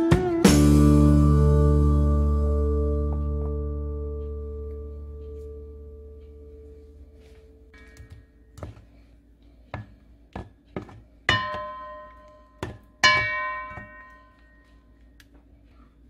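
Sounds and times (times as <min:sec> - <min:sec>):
wooden spoon knocking metal bowl: 0:09.7 - 0:14.6
bowl ringing: 0:11.3 - 0:15.0.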